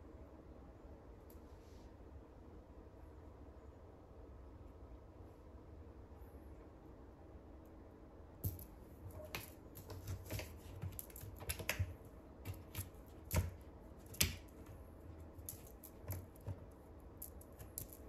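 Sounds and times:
cat paws on cardboard scratcher: 8.4s - 18.0s.

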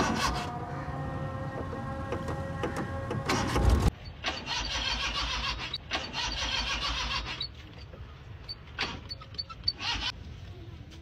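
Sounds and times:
starter motor cranking engine: 2.8s - 7.6s, 8.5s - 10.2s.

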